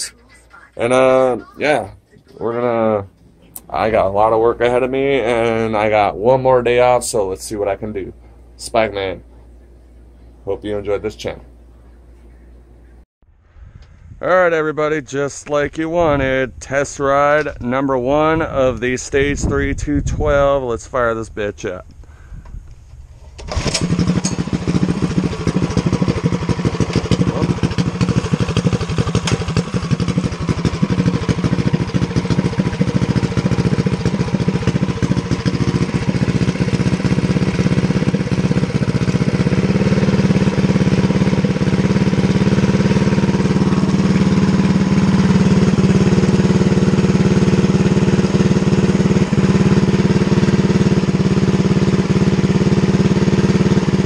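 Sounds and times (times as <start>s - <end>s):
small engine idling unevenly: 23.4s - 54.0s.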